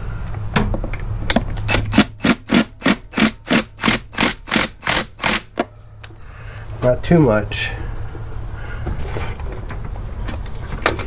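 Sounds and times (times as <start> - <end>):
impact driver hammering: 1.7 - 5.6.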